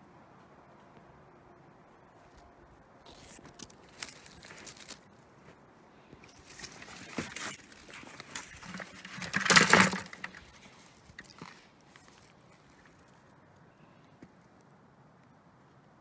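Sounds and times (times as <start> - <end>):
footsteps crunching through snow: 2.1 - 9.3.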